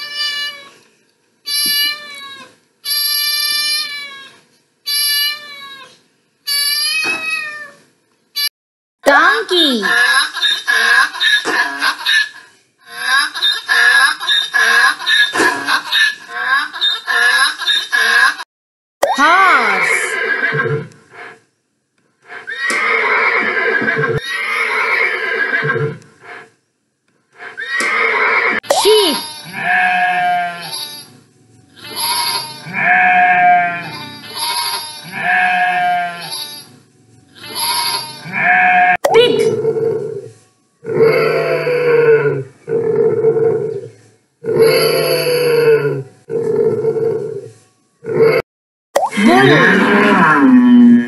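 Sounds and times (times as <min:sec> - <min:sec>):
cat meowing: 0:01.5 - 0:02.5, 0:03.2 - 0:04.4, 0:05.0 - 0:07.8
horse neighing: 0:19.6 - 0:20.9, 0:22.3 - 0:26.1, 0:27.4 - 0:28.6, 0:40.9 - 0:43.7, 0:44.4 - 0:46.0, 0:49.2 - 0:51.0.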